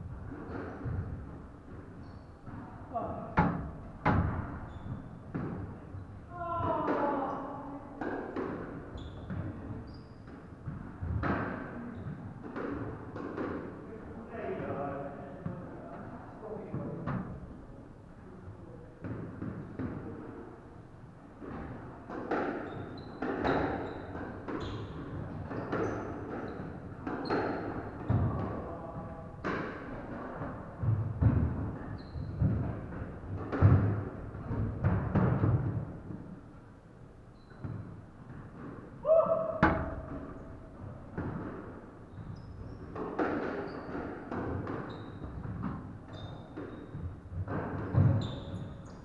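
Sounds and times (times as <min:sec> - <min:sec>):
shoes squeaking on wooden floor: 0:04.6 - 0:05.2, 0:08.9 - 0:10.2, 0:22.6 - 0:27.4, 0:31.8 - 0:32.5, 0:37.3 - 0:38.4, 0:42.0 - 0:43.0, 0:43.6 - 0:44.0, 0:44.8 - 0:47.1, 0:47.9 - 0:49.0
squash ball hits: 0:29.4 - 0:36.2, 0:37.6 - 0:48.7.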